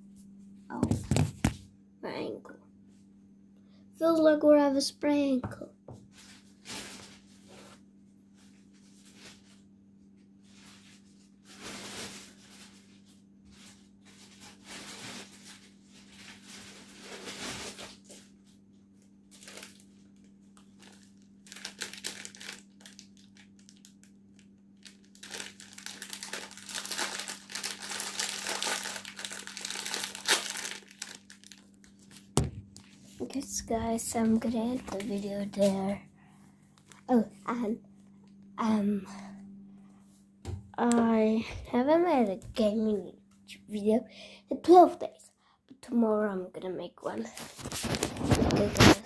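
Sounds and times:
rustling and crinkling: 5.9s - 36.0s, 47.2s - 49.0s
steady low hum: 15.1s - 45.8s.

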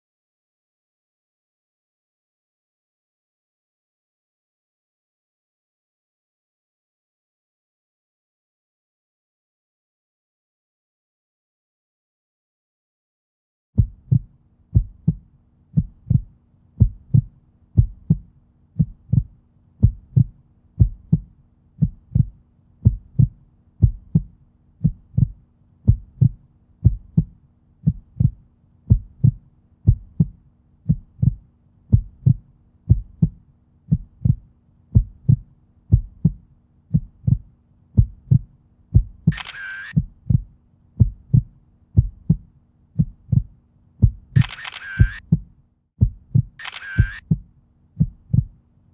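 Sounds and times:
heartbeat thumps: 13.8s - 48.6s.

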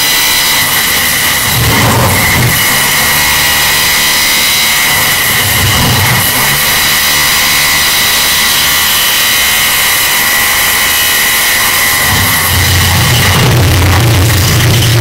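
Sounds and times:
distorted construction machinery din: 0.0s - 15.0s
high steady whine: 0.0s - 15.0s
low rumble: 12.0s - 15.0s.

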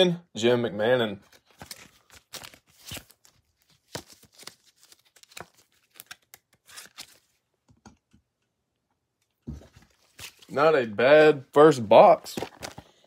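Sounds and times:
trading cards and plastic crinkling: 1.2s - 7.4s, 9.6s - 10.7s, 11.9s - 13.0s.

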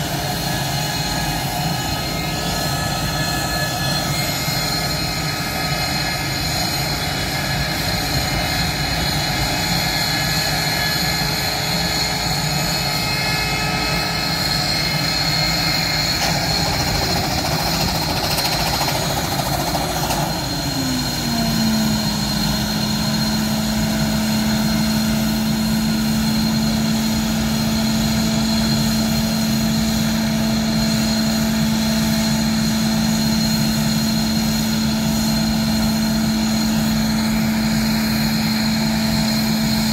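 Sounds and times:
jet engines idling: 0.0s - 39.9s.

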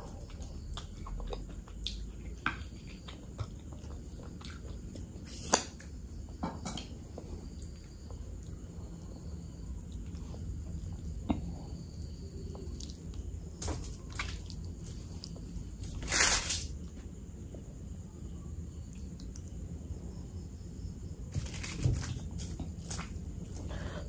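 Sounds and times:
fingers squishing rice and curry: 0.0s - 17.8s.

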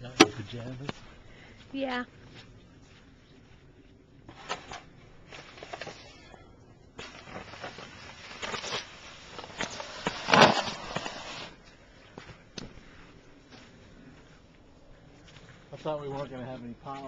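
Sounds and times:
snow shovel scraping: 7.0s - 11.6s.

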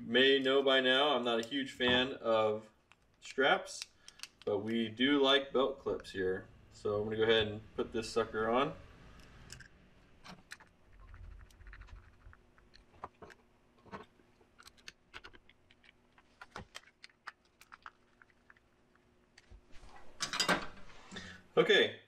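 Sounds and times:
screwdriver clicks and scrapes: 3.8s - 4.5s.

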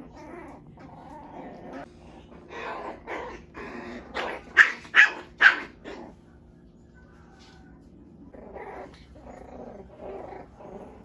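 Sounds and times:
puppy growls: 0.0s - 6.6s, 7.4s - 11.0s
puppy yapping: 4.1s - 6.2s.

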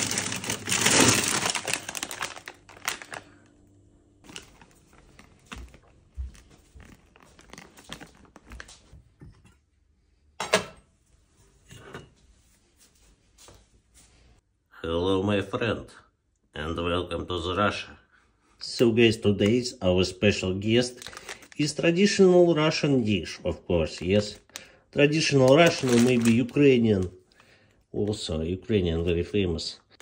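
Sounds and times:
plastic bags rustling: 0.0s - 3.5s, 4.2s - 9.0s, 20.4s - 27.7s
metal cookware clank: 10.4s - 10.9s.

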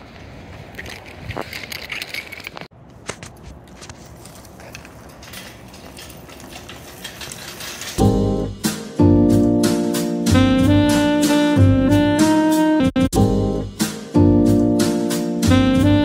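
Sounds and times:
light metallic clinks and rattles: 0.8s - 2.7s, 4.2s - 8.1s
jazz music with saxophone: 8.0s - 16.0s.

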